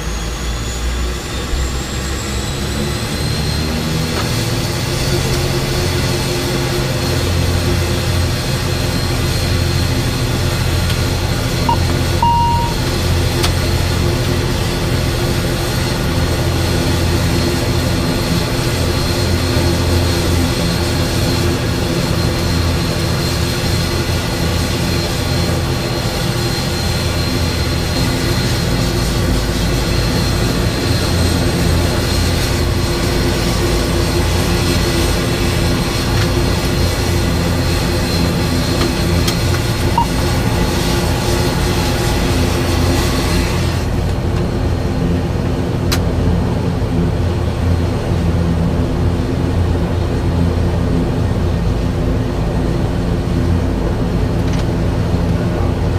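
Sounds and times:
turboprop engine drone: 0.0s - 55.9s
short electronic beep: 11.7s - 12.9s, 39.9s - 40.6s.

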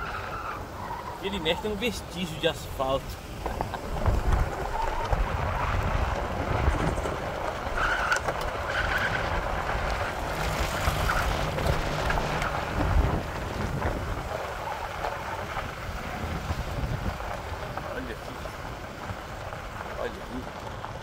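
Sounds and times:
tyres rumbling on rough road: 0.0s - 21.0s
wind noise through window: 15.3s - 17.5s.

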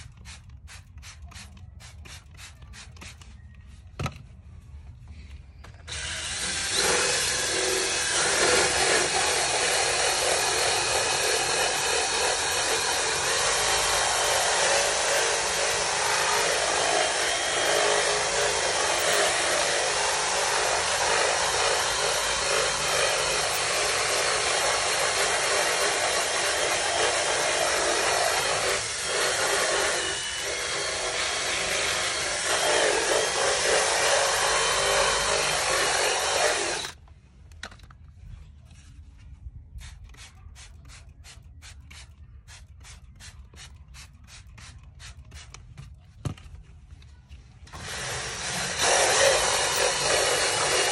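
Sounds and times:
drill spinning scrub brush: 5.9s - 37.0s, 47.7s - 50.9s.

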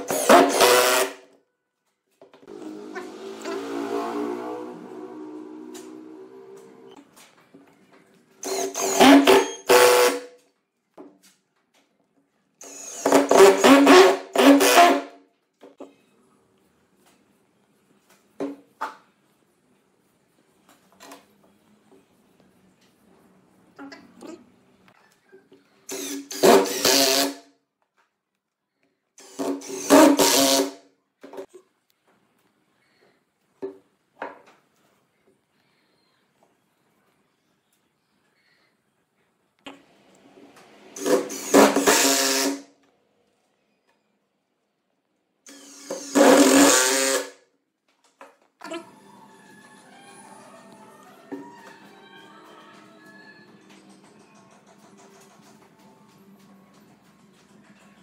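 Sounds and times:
cordless drill driving screws into wood: 0.0s - 1.2s, 8.4s - 10.2s, 12.6s - 15.0s, 25.9s - 27.4s, 29.2s - 30.8s, 41.0s - 42.6s, 45.5s - 47.4s.

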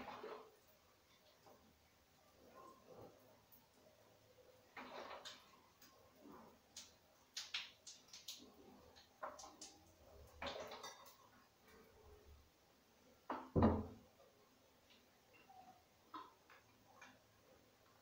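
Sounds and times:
thump: 13.5s - 14.0s.

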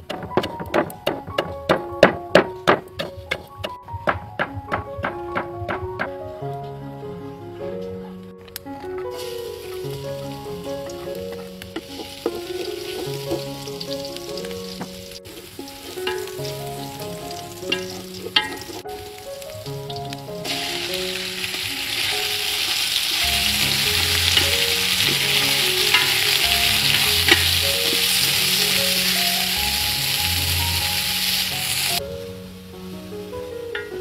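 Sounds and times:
background music: 0.0s - 34.0s
garlic frying in oil: 9.1s - 32.0s
meat sizzling loudly: 9.1s - 32.4s.

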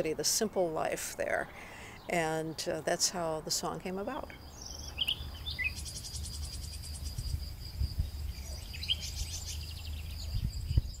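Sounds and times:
high insect trill: 4.4s - 11.0s.

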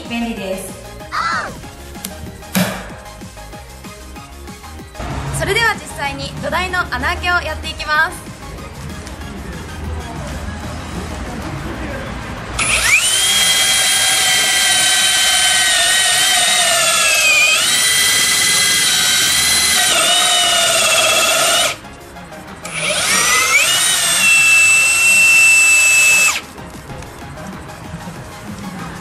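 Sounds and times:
cordless drill boring into wood: 12.6s - 21.8s, 22.6s - 26.4s.

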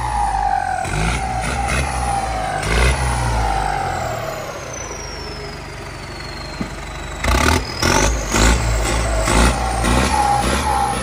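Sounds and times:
diesel tractor engine revving: 0.0s - 11.0s
turbo whistle: 4.8s - 11.0s.

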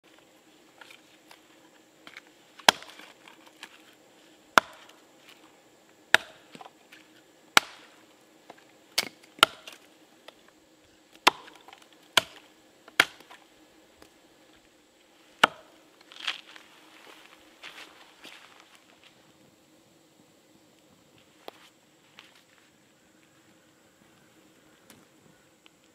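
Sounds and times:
hatchet chopping wood: 2.1s - 3.4s, 4.5s - 5.0s, 6.1s - 6.7s, 7.5s - 8.0s, 9.0s - 9.8s, 11.2s - 13.4s, 15.4s - 15.7s.

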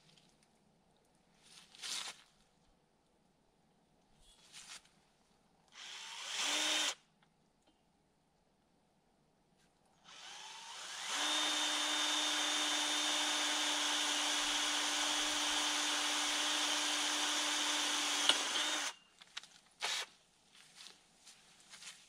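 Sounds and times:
electric drill running: 5.8s - 7.0s, 10.1s - 19.0s.

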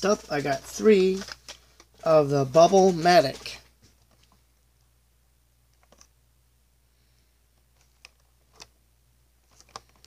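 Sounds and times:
plastic blister packs handled: 0.0s - 4.4s, 9.4s - 10.0s
low steady hum: 0.0s - 10.0s.

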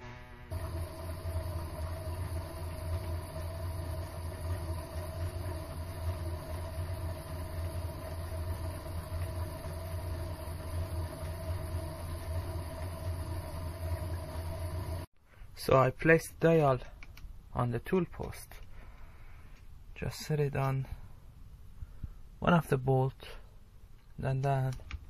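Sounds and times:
lathe motor humming and whining: 0.5s - 15.1s.

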